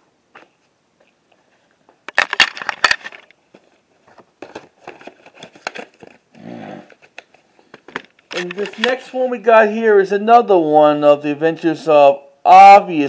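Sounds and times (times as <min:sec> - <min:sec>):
plastic cases clattering and rustling: 0:02.0 - 0:06.3, 0:06.9 - 0:09.1.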